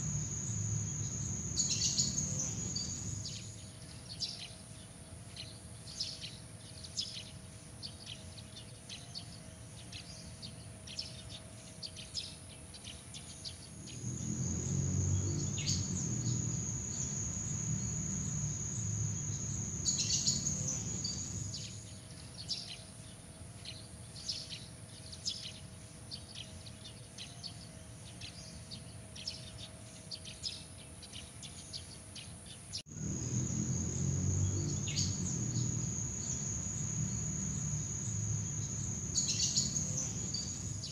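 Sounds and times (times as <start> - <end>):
crickets trilling: 0.0 - 3.6, 13.7 - 21.9, 32.9 - 40.9
insect chirps: 0.0 - 4.5, 13.2 - 22.6, 32.9 - 40.9.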